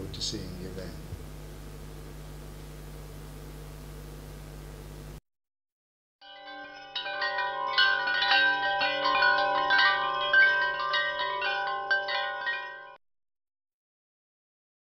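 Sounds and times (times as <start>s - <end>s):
ringing chimes: 6.2s - 13.0s.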